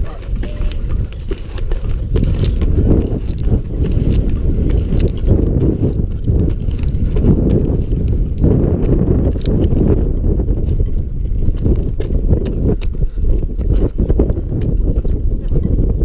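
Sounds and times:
heavy low rumble: 0:00.0 - 0:16.0.

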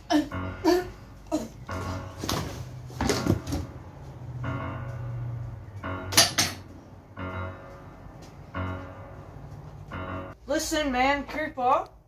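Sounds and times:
keyboard music: 0:00.0 - 0:10.4
sharp knocks and clattering thumps: 0:01.6 - 0:03.8
steady low note: 0:03.6 - 0:10.4.

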